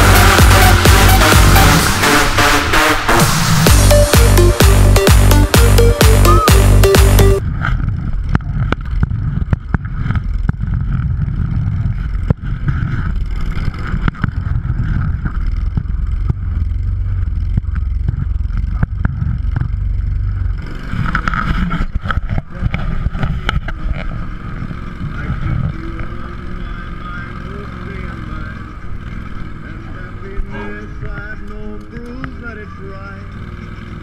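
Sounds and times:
tracked vehicle engine drone: 0.0s - 34.0s.

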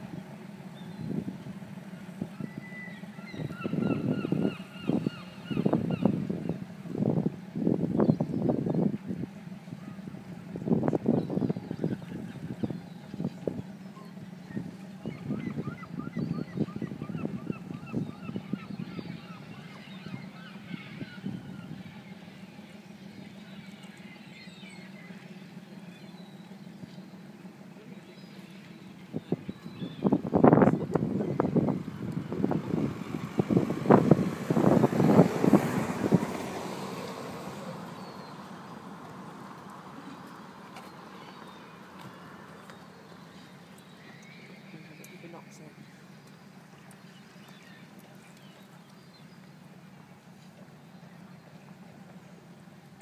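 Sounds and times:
high bird calls: 0.0s - 6.8s, 10.8s - 32.8s, 39.6s - 49.6s
boat engine droning: 0.0s - 53.0s.

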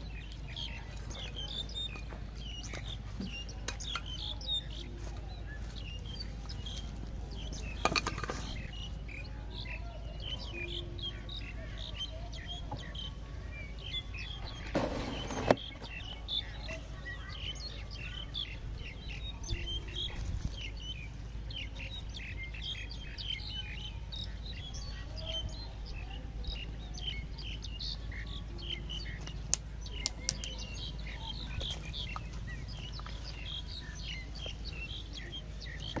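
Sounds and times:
small birds chirping: 0.0s - 36.0s
sharp clicks: 29.2s - 30.6s.

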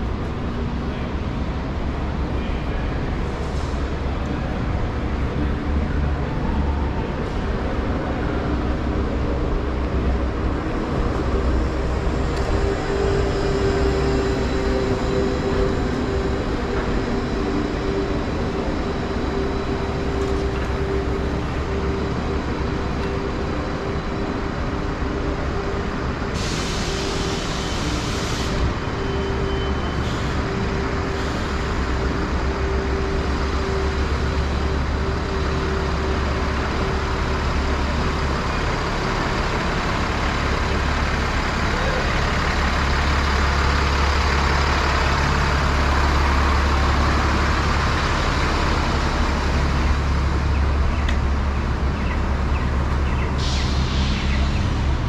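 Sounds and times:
heavy truck engine rumbling: 0.0s - 55.0s
street traffic: 0.0s - 55.0s
air hiss: 26.4s - 28.6s.

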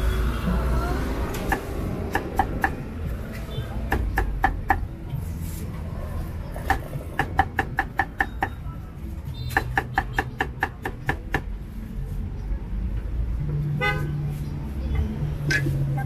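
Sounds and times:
cleaver chopping on wooden block: 1.4s - 2.8s, 3.9s - 4.8s, 6.6s - 8.6s, 9.5s - 11.5s.

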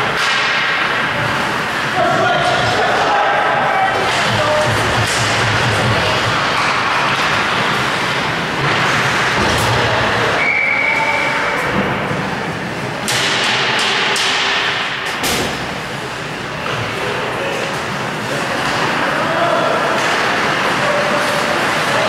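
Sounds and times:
hockey sticks and puck clacking: 0.0s - 15.6s, 17.6s - 22.0s
short whistle blast: 10.4s - 11.4s.

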